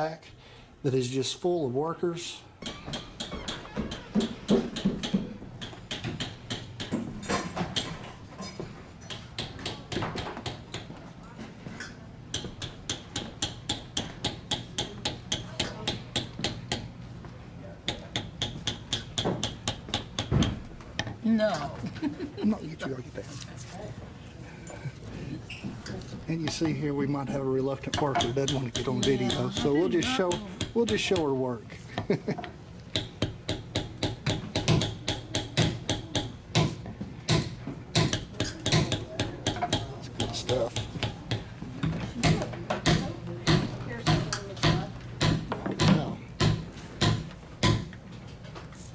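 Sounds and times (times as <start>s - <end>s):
mallet tapping stamping tools: 2.6s - 8.0s, 12.3s - 16.9s, 17.9s - 21.2s, 27.8s - 31.3s, 32.9s - 48.0s.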